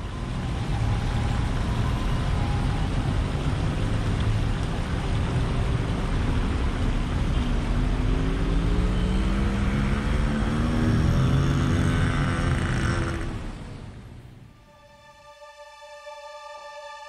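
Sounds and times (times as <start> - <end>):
cars passing rumble: 0.0 - 14.6.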